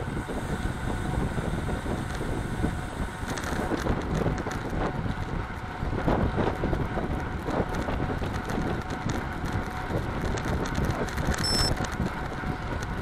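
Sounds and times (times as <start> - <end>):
tyre road noise: 0.0 - 13.0
wind rushing over microphone: 0.0 - 13.0
short high beep: 11.4 - 11.8.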